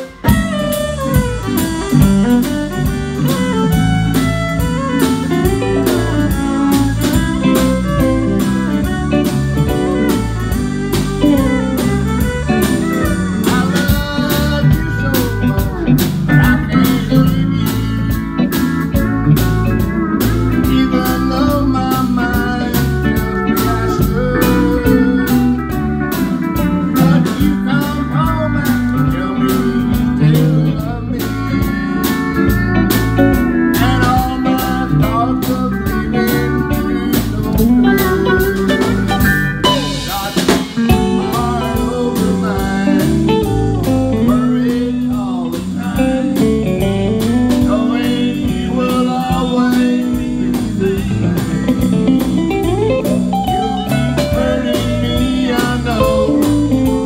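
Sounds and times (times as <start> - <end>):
fiddle: 0.0 - 34.0
drums: 0.0 - 57.0
electric bass: 0.0 - 57.0
man singing: 0.0 - 57.0
pedal steel guitar: 0.0 - 57.0.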